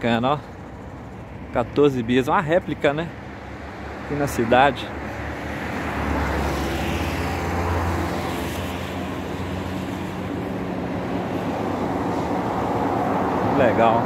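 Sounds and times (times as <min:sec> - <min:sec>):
traffic rushing: 0:00.0 - 0:14.0
vehicle engine humming: 0:00.0 - 0:14.0.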